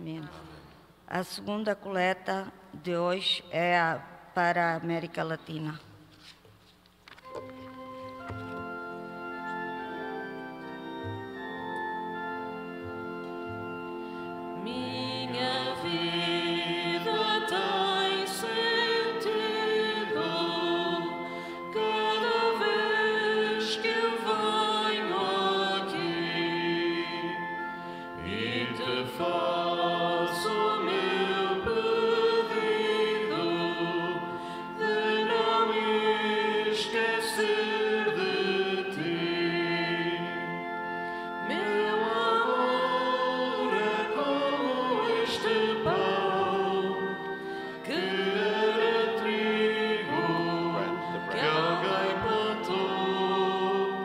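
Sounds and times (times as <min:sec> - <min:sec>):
sustained held notes: 0:07.4 - 0:54.0
choir singing a hymn: 0:14.6 - 0:54.0.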